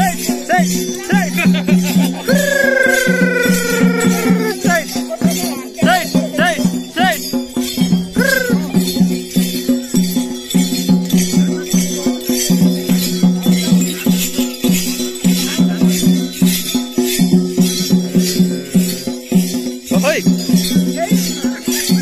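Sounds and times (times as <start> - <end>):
drums beaten in fast rhythm: 0.0 - 22.0
hand bells jangling: 0.0 - 22.0.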